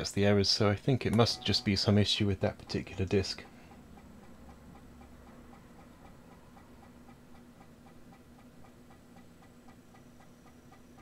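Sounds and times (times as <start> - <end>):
floppy disk drive ticking: 1.0 - 11.0
low hum: 1.1 - 2.7.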